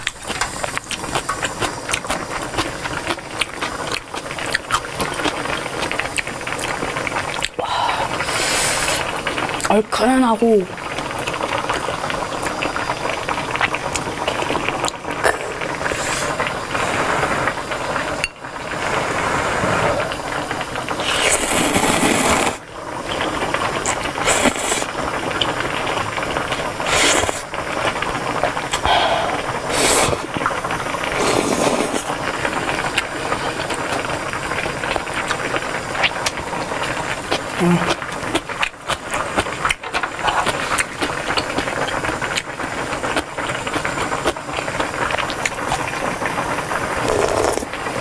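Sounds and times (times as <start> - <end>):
chewing: 0.0 - 7.6, 36.0 - 45.9
noodles slurped: 0.0 - 9.7, 13.6 - 17.6, 18.8 - 25.5, 26.5 - 34.1, 35.2 - 46.0, 47.0 - 47.8.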